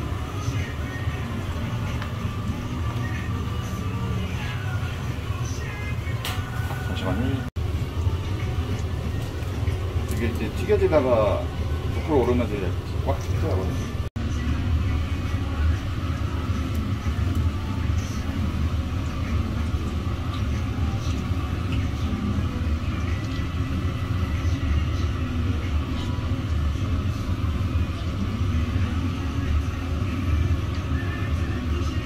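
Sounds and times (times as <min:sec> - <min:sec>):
deep-frying in a fryer: 0:00.0 - 0:32.0.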